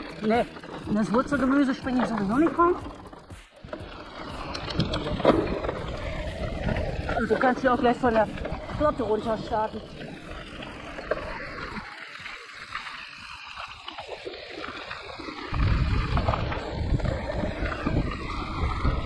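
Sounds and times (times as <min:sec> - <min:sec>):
bike tyre and trail noise: 0:00.0 - 0:19.0
wind buffeting microphone: 0:03.7 - 0:11.8, 0:14.3 - 0:19.0.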